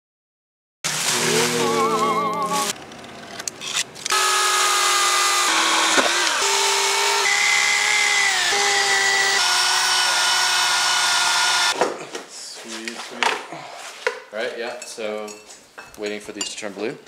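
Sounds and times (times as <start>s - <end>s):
chainsaw cutting ice: 4.1s - 11.8s.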